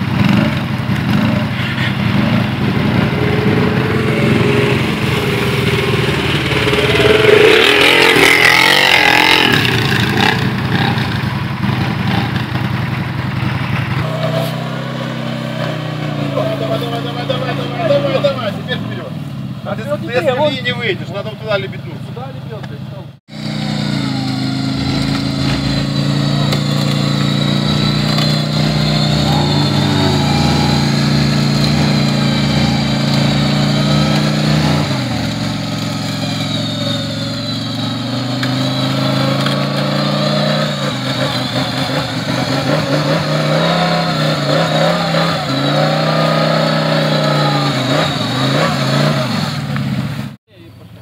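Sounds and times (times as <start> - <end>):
engine revving high: 0.0 - 11.1, 23.3 - 50.3.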